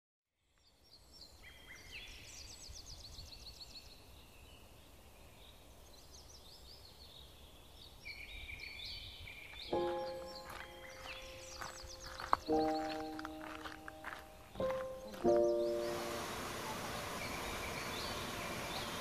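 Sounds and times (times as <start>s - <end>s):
songbirds trilling and whistling: 0.7s - 19.0s.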